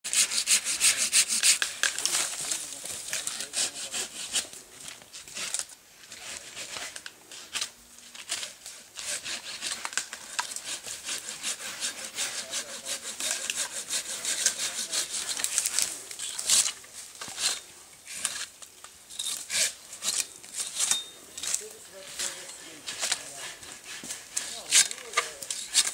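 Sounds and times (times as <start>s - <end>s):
pruning saw cutting branch: 0.1s - 4.6s, 8.3s - 17.6s, 19.2s - 25.9s.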